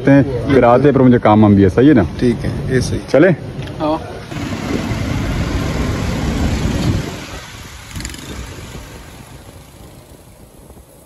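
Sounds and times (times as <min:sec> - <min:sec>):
street traffic: 0:00.0 - 0:11.0
vehicle engine rumble: 0:04.2 - 0:11.0.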